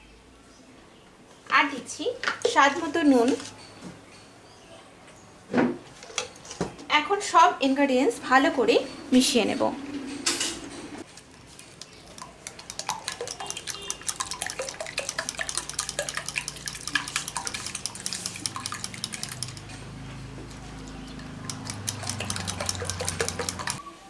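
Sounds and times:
liquid sloshing: 11.0s - 23.8s
whisk clinking against glass bowl: 11.8s - 19.9s, 20.5s - 23.8s.

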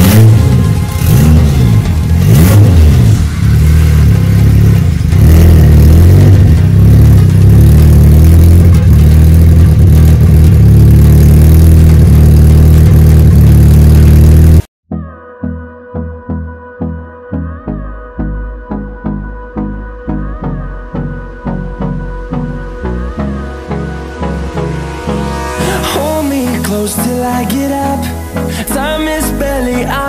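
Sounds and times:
car engine revving: 0.0s - 14.7s, 22.3s - 30.0s.

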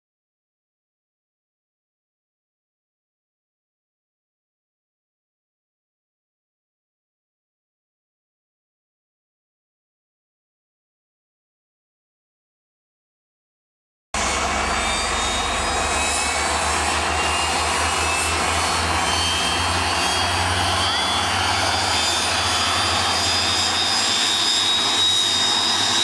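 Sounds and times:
jet engines running with whine: 14.2s - 26.0s.

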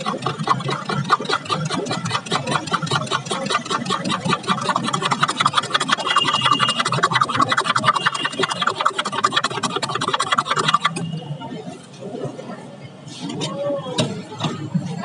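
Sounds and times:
spoon whisking in steel tumbler: 0.0s - 11.2s.

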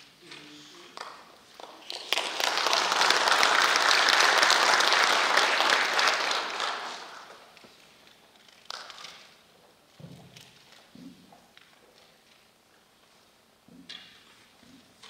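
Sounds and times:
audience applauding: 1.6s - 7.6s.

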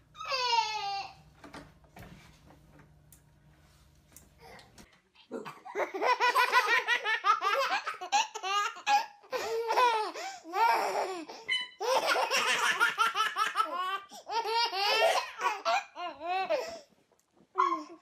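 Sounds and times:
babies laughing: 5.8s - 11.2s, 11.8s - 16.0s.

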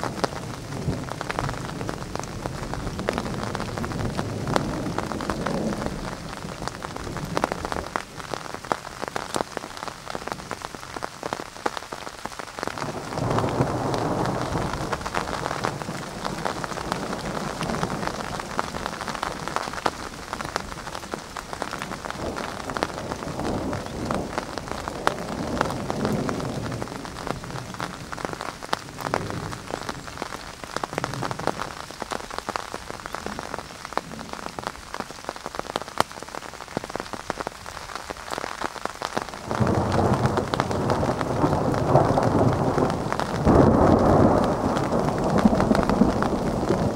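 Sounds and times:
thunder rumbling: 0.0s - 8.4s, 12.7s - 31.8s, 39.4s - 46.9s
rain pattering: 0.0s - 46.9s.

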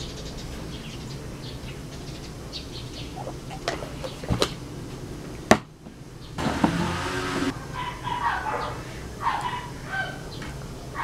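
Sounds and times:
faint bird chirps: 0.0s - 4.4s.

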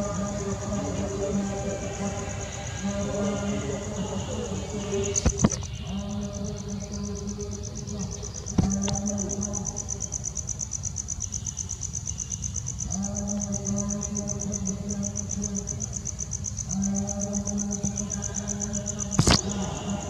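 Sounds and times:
insects trilling: 0.0s - 20.0s
sharp clicks: 19.1s - 19.6s.

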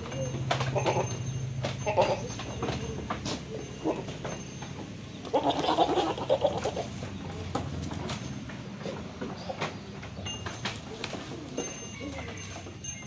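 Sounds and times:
goat calling: 0.0s - 1.2s, 1.8s - 4.3s, 5.2s - 7.0s.

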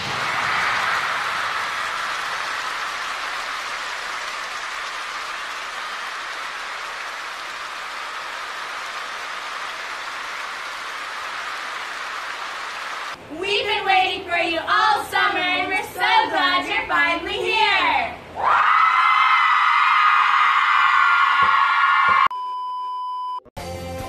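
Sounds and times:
arena crowd cheering and applauding: 0.0s - 13.2s, 18.4s - 22.3s.

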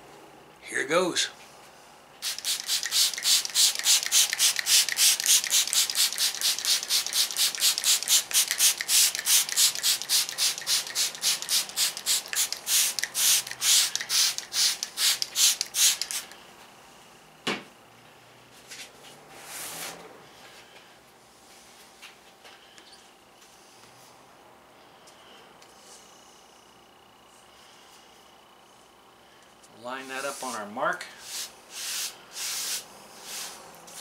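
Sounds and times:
spray bottle squirting: 2.2s - 16.4s.

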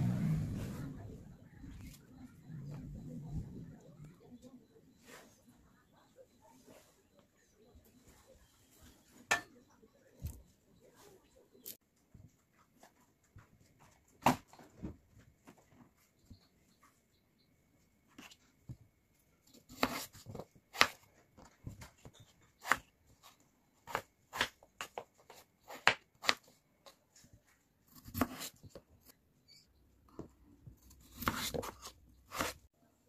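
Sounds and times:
knife cutting potatoes: 19.5s - 21.1s, 22.0s - 26.6s, 27.8s - 29.2s, 30.2s - 32.7s.

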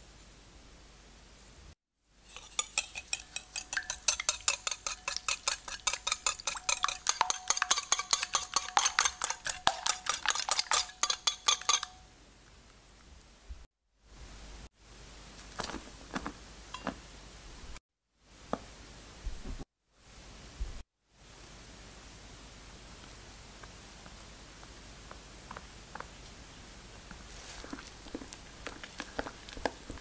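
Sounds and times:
whisk clinking against bowl: 2.3s - 12.0s.

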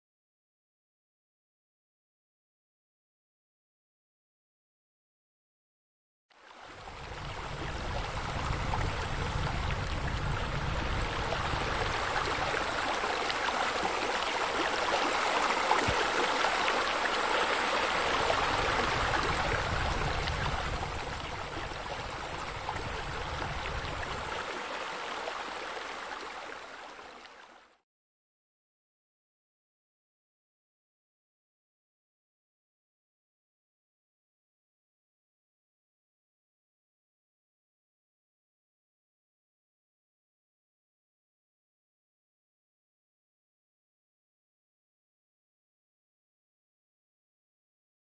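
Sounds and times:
running water: 6.4s - 27.8s.

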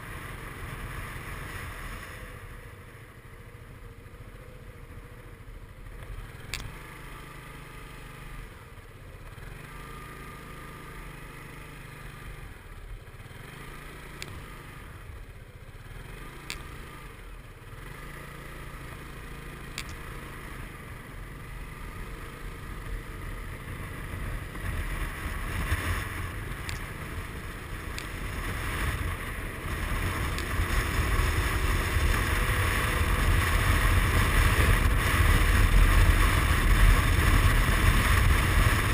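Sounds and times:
scooter engine running: 0.0s - 38.9s
sharp clicks: 6.0s - 6.8s, 14.2s - 14.4s, 19.7s - 20.1s, 26.6s - 26.9s
wind noise: 28.0s - 38.9s.

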